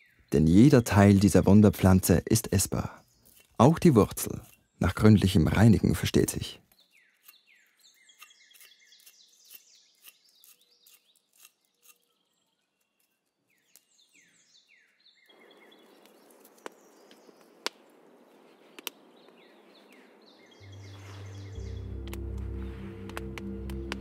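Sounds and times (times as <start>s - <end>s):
small bird chirping: 6.6s - 22.8s
campfire crackling: 15.3s - 24.0s.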